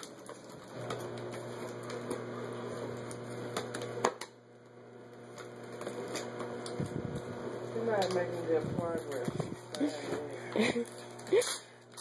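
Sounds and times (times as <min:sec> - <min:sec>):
steady hum: 0:01.2 - 0:12.0
paper crinkling and tearing: 0:08.8 - 0:12.0.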